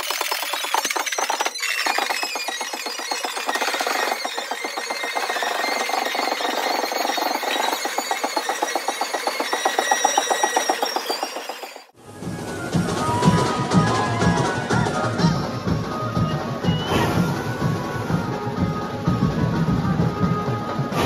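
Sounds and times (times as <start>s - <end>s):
fast drum roll: 0.0s - 21.0s
drum beat with deep bass: 12.3s - 21.0s.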